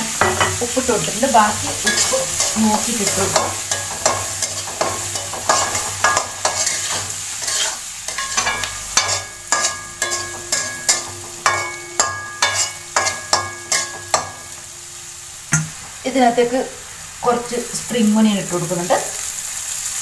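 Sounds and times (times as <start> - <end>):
pan ringing: 0.0 - 6.9, 8.0 - 16.4
vegetables sizzling in oil: 0.0 - 20.0
metal spatula scraping a wok: 0.1 - 14.7.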